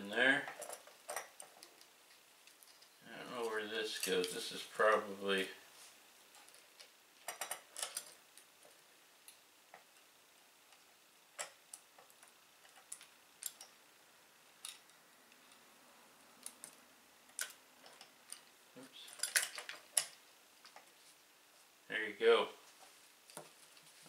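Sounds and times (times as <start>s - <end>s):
metal nuts and washers clinking: 0.2s - 5.0s, 6.3s - 8.8s, 10.8s - 13.8s, 14.6s - 15.6s, 16.4s - 20.9s.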